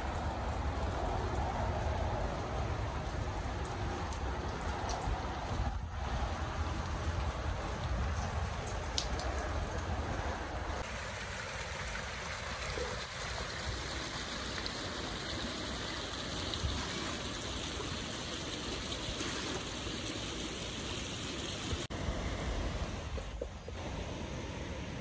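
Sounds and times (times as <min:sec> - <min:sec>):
brook running over rocks: 0:00.0 - 0:21.9.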